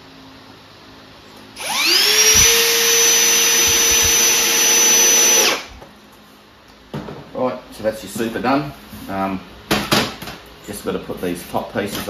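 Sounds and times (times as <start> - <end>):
cordless drill driving screw: 1.6 - 5.7.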